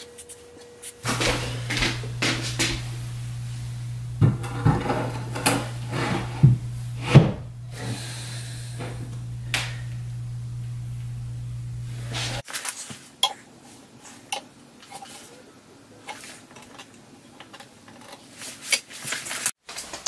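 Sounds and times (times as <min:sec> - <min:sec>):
steady low hum: 0:00.1 - 0:12.4.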